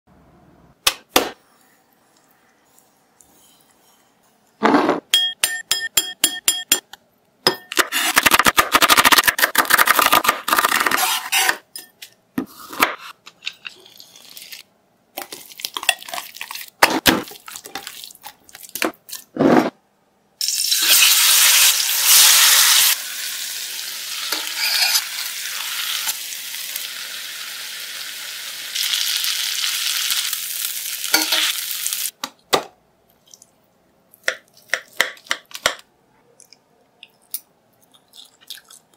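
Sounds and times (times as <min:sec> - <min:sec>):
marinade being stirred: 0:13.5 - 0:19.3
chicken sizzling in a pan: 0:20.5 - 0:32.1.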